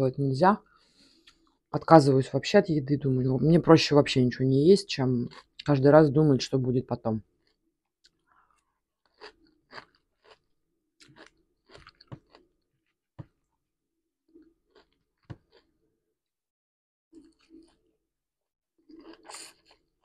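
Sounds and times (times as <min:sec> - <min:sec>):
person chewing salad crunchily: 0:00.7 - 0:01.7, 0:05.2 - 0:05.7, 0:07.4 - 0:12.7, 0:14.3 - 0:15.7, 0:17.1 - 0:17.9, 0:18.9 - 0:20.0.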